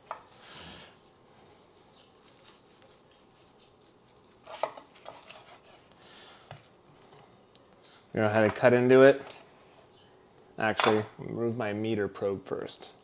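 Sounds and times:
knife scraping bone and board: 4.3s - 5.9s.

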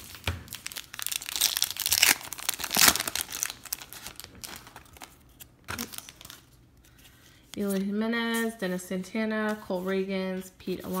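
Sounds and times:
plastic wrapper tearing and crinkling: 0.0s - 6.5s.

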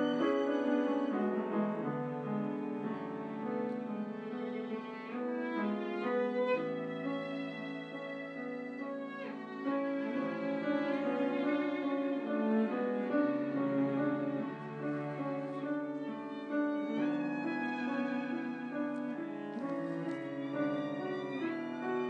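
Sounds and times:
piano: 0.0s - 22.0s
violin bowed notes: 0.0s - 22.0s
cello bowed notes: 4.3s - 22.0s.

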